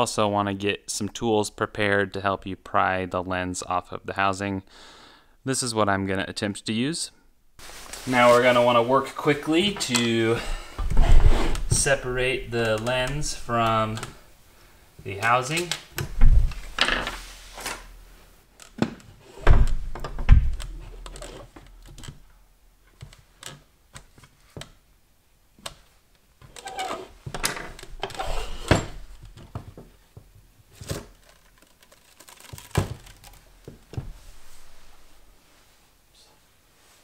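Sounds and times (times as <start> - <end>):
heavy thumps: 16.0 - 16.8, 18.8 - 21.0, 32.7 - 35.3
plastic knocking and scraping: 29.1 - 34.2.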